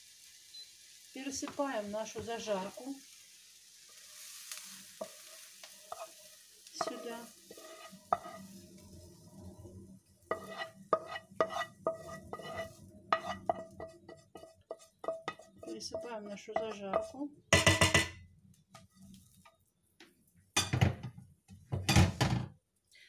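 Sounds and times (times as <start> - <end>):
faint sizzle: 0.0 - 23.0
food scraped from frying pan: 3.8 - 9.6, 10.2 - 15.7
spatula knocking against pan: 10.3 - 18.2.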